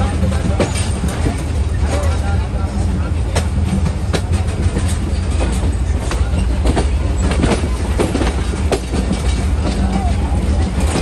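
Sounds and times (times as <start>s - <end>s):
train rumbling on track: 0.0s - 11.0s
wheels clicking and knocking: 3.4s - 11.0s.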